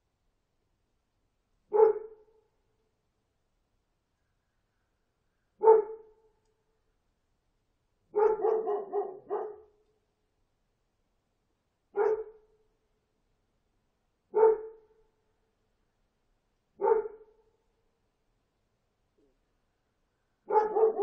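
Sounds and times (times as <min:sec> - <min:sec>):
dog barking: 0:01.7 - 0:02.2, 0:05.6 - 0:06.2, 0:08.1 - 0:09.7, 0:12.0 - 0:12.4, 0:14.3 - 0:14.8, 0:16.8 - 0:17.3, 0:20.5 - 0:21.0.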